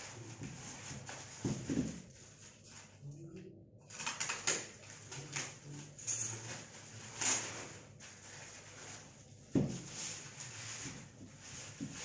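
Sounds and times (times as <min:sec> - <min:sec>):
plastic wrapping crinkling: 0:03.9 - 0:12.0.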